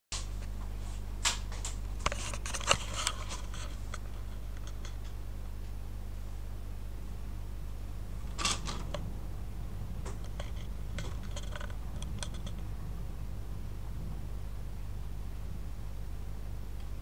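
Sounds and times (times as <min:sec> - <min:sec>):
low electrical hum: 0:00.2 - 0:17.0
webcam handling clicks and scrapes: 0:02.1 - 0:05.0.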